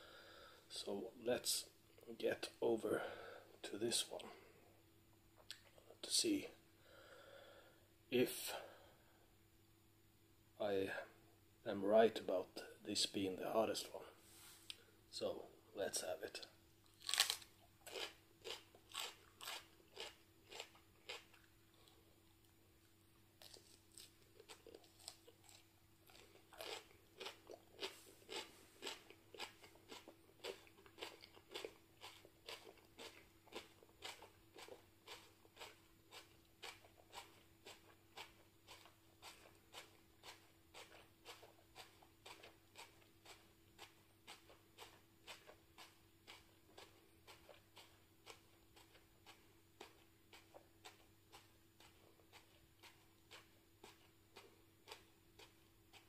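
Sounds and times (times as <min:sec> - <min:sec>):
person chewing crunchily: 0:16.9 - 0:22.1, 0:23.4 - 0:56.0.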